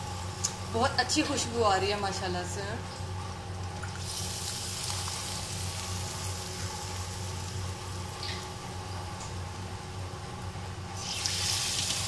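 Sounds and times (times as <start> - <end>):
low steady hum: 0.0 - 12.0
pot sizzling: 4.0 - 8.6, 10.9 - 12.0.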